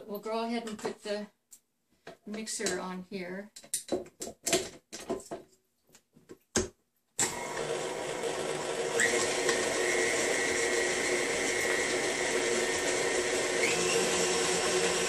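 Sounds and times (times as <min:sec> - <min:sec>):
beater clicking into mixer: 0:07.2 - 0:15.0
stand mixer motor whining: 0:07.2 - 0:15.0.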